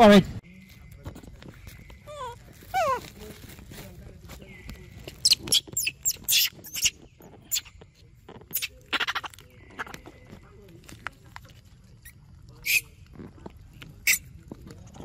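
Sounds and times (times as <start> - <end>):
baby monkeys squealing: 1.8 - 3.2, 5.0 - 7.8, 8.5 - 10.1, 12.0 - 13.0, 14.0 - 14.3.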